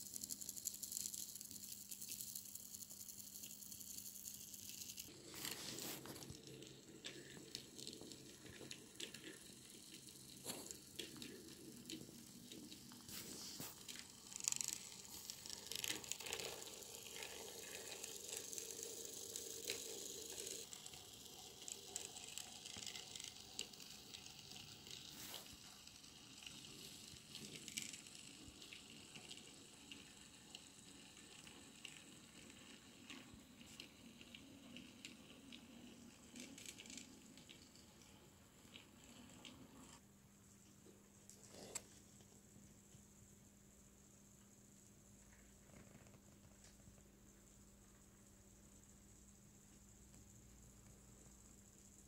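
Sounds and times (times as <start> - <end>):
model train wheels clicking on rails: 0.0 - 40.0.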